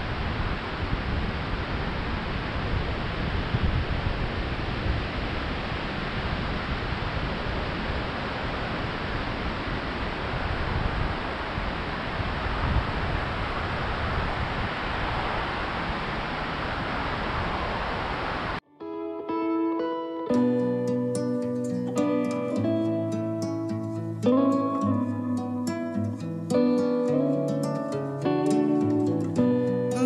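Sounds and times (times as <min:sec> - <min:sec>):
surf breaking on beach: 0:00.0 - 0:18.6
wind rumbling on microphone: 0:00.0 - 0:18.6.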